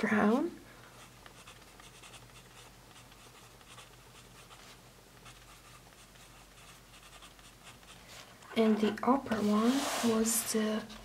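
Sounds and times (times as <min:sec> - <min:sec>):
pen scratching on paper: 0:01.0 - 0:08.0.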